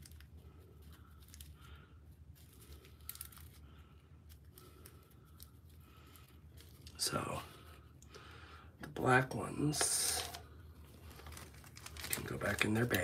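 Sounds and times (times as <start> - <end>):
plastic bag crinkling: 0.0 - 7.7, 9.6 - 13.0
low steady hum: 0.0 - 13.0
small beads clicking on plastic: 2.4 - 3.6.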